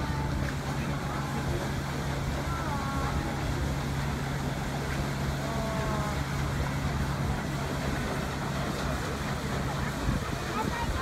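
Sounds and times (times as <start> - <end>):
constant low hum: 0.0 - 11.0
wind buffeting microphone: 6.5 - 11.0.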